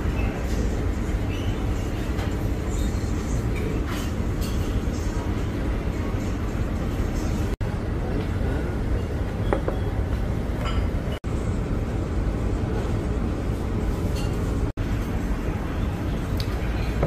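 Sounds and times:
low restaurant rumble: 0:00.0 - 0:17.0
cutlery and tableware clinking: 0:02.1 - 0:05.0.

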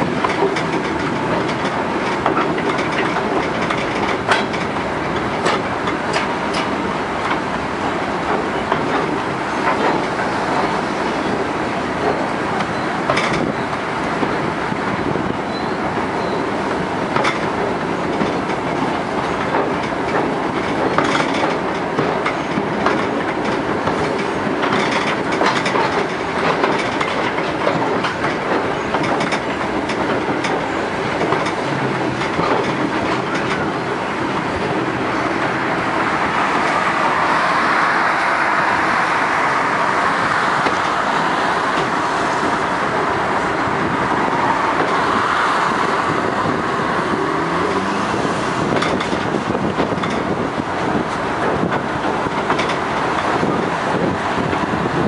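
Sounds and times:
wheels clicking over rail joints: 0:00.0 - 0:38.4, 0:39.0 - 0:55.0
train running on track: 0:00.0 - 0:55.0.

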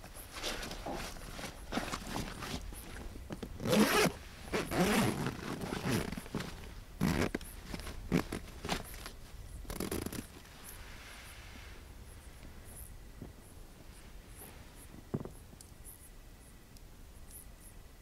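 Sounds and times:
zipper pulled: 0:03.6 - 0:08.8, 0:09.7 - 0:10.3.

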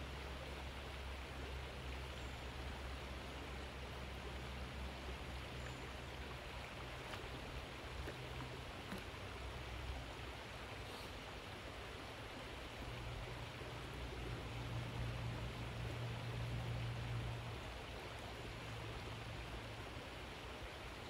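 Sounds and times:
creek water running: 0:00.0 - 0:21.0
dog paddling splashes: 0:05.6 - 0:09.9.

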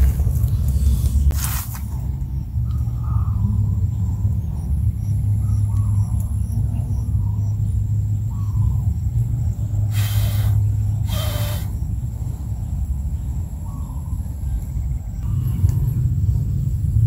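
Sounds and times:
wind buffeting the microphone: 0:00.0 - 0:17.0
short hissing rustles: 0:00.7 - 0:02.0, 0:09.9 - 0:11.8.

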